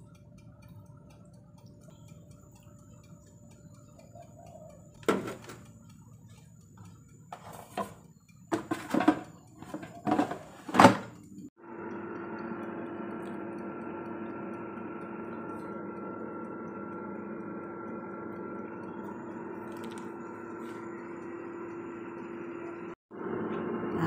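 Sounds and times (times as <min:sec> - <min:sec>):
air fryer fan whirring: 0:00.0 - 0:24.0
plastic basket clattering: 0:08.6 - 0:11.2.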